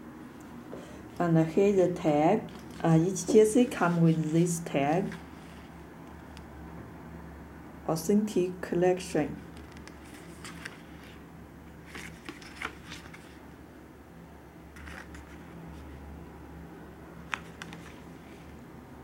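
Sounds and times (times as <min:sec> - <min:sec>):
cardboard tags rustling: 0:02.4 - 0:04.4, 0:11.8 - 0:13.4.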